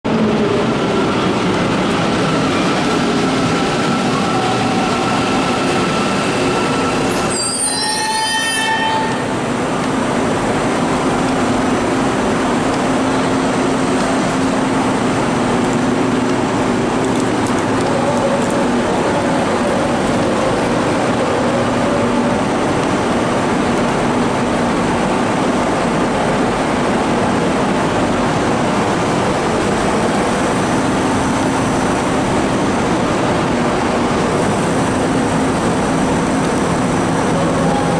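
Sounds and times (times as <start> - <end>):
metro train rumbling: 0.0 - 37.9.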